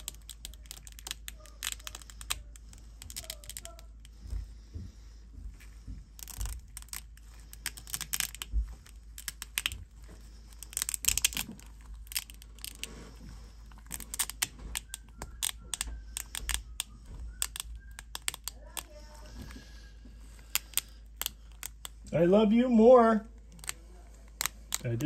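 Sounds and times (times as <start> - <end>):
plastic supports snapping: 6.1 - 12.9, 13.8 - 19.4.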